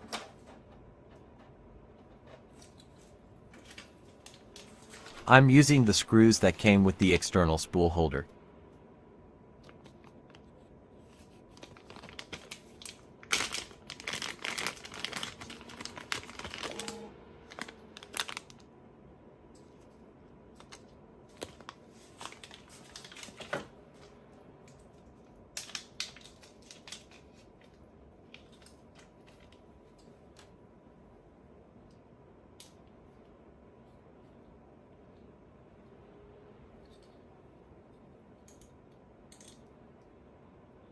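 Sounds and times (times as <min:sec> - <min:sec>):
plastic bags crinkling: 0:11.5 - 0:18.6, 0:21.3 - 0:23.6.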